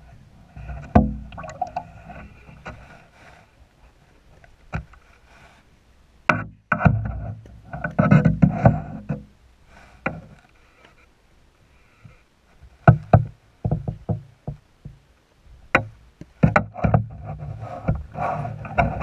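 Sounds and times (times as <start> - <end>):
muffled underwater knocks and clicks: 0.6 - 2.9, 6.3 - 9.3, 12.8 - 15.0, 15.7 - 19.0.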